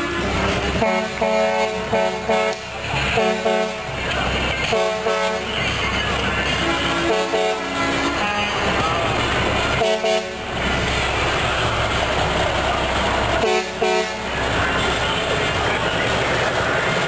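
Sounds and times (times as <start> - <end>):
steady background noise: 0.0 - 17.0
truck air horn blasts: 0.7 - 2.6, 3.2 - 3.9, 4.7 - 5.5, 6.6 - 8.8, 9.8 - 10.5, 13.4 - 14.4.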